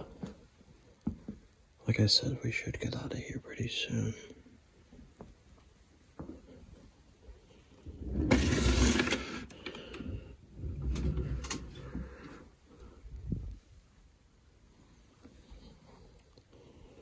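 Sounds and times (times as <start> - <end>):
wooden drawers sliding on runners: 7.9 - 9.5.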